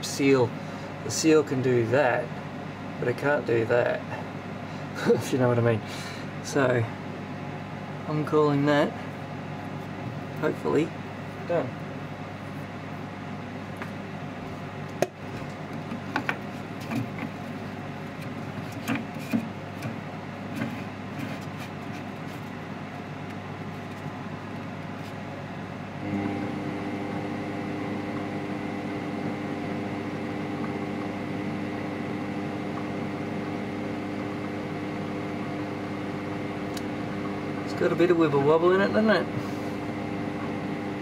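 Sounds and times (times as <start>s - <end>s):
lathe running: 26.0s - 41.0s.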